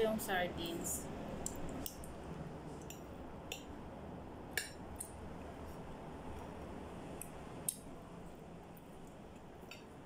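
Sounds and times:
low background noise: 0.0 - 10.0.

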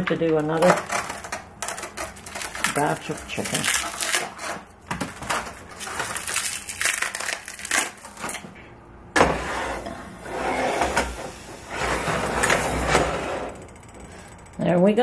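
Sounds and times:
plastic wrap crinkling: 1.7 - 8.4.

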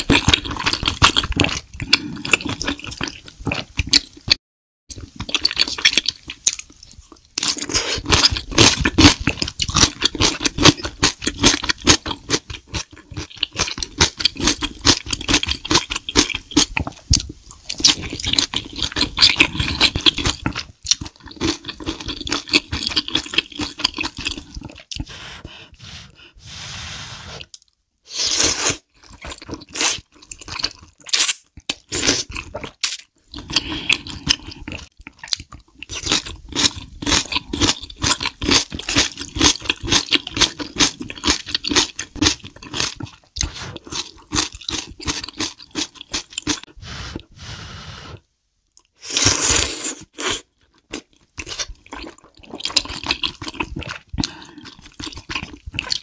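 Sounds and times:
wet chewing and smacking: 0.0 - 25.1, 28.9 - 46.8, 50.1 - 56.0
slurping noodles: 21.3 - 30.7, 38.9 - 48.3, 49.0 - 56.0.

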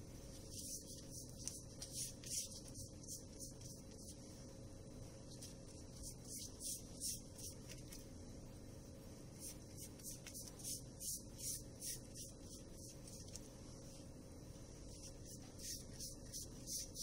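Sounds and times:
steady low hum: 0.0 - 17.0
pastry brush swishing: 9.3 - 17.0.

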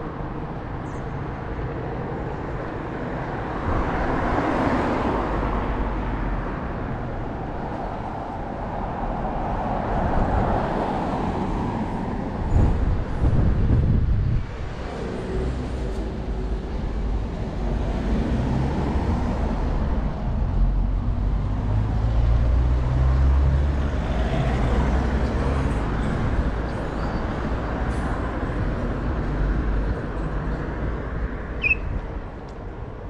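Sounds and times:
cars passing: 0.0 - 33.0
short high chirp: 31.6 - 32.0.

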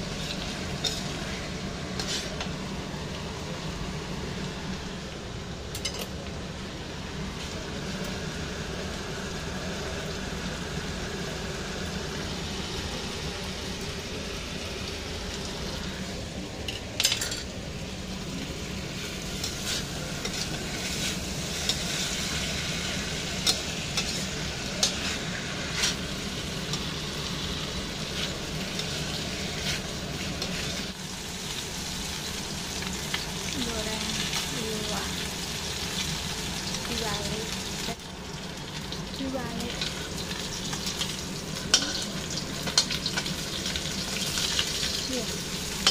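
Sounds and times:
food sizzling in a wok: 0.0 - 45.9
metal spatula scraping wok: 0.1 - 2.5, 23.4 - 26.1
fish frying in oil: 7.1 - 45.9.

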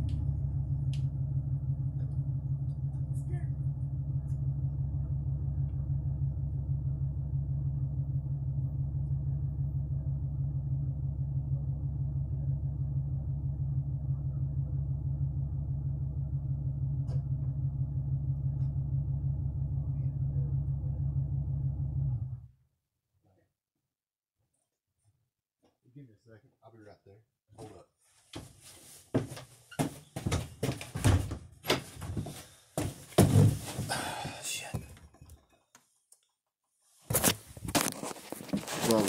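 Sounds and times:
low mechanical hum: 0.0 - 22.4.

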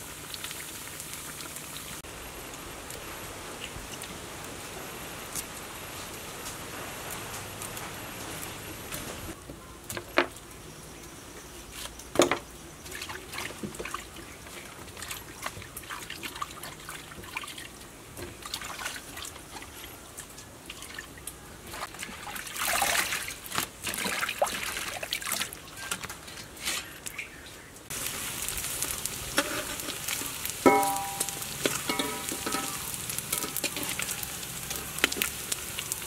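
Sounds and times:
water splashing in a steel basin: 12.8 - 26.4, 27.9 - 36.0.

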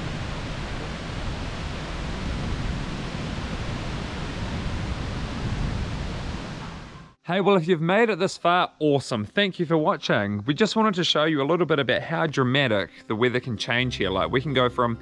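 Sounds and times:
heavy rain on trees: 0.0 - 7.0.

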